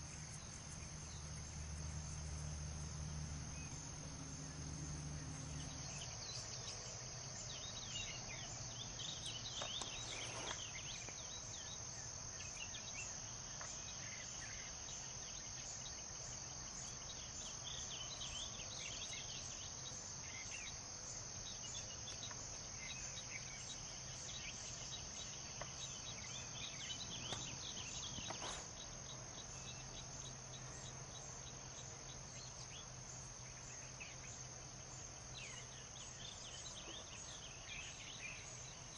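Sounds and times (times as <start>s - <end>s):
crickets chirping: 0.0s - 38.9s
low steady hum: 0.0s - 38.9s.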